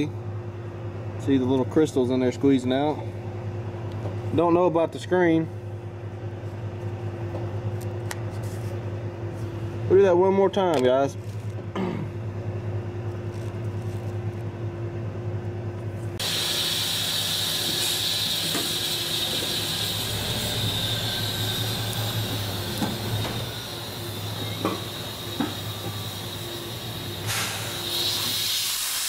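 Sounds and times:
diesel engine idling: 16.2s - 28.2s
steady hiss: 16.2s - 29.0s.

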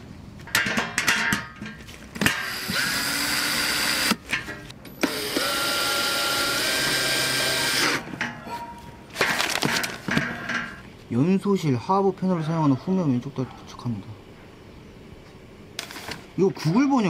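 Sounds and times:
cordless drill driving screws: 2.3s - 4.2s, 5.0s - 8.0s
metal parts clattering: 8.2s - 10.8s.

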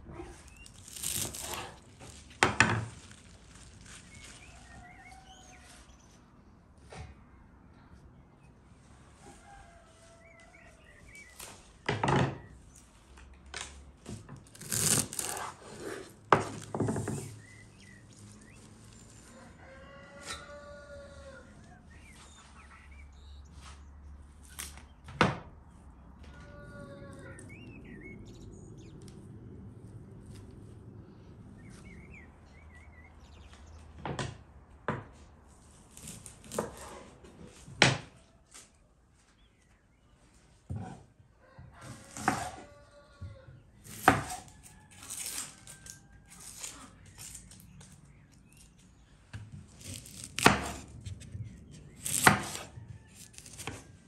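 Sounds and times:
rustling leaves: 0.2s - 6.2s, 14.5s - 19.8s
birds chirping: 3.0s - 13.0s, 16.7s - 34.0s.

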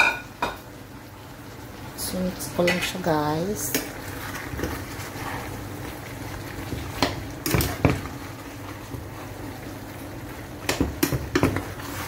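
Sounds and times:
pot simmering with low bubbling: 0.0s - 12.0s.

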